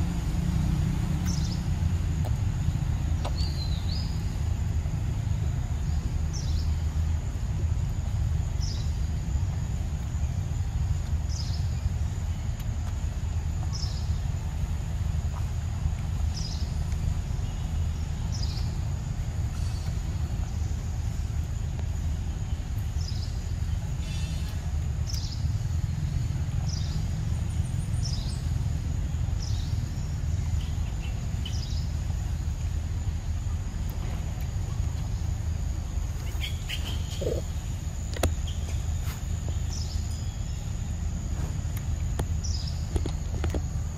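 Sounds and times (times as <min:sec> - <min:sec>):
high insect drone: 0:00.0 - 0:43.9.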